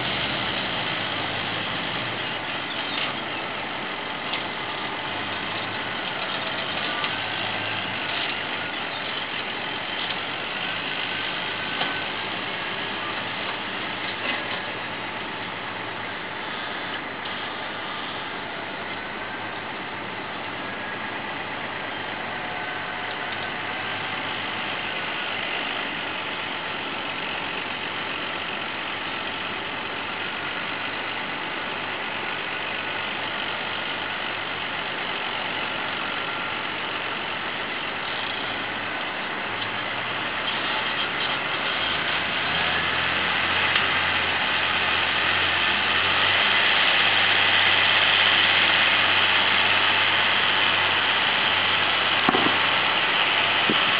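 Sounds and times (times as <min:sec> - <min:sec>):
tractor diesel engine under load: 0:00.0 - 0:53.9.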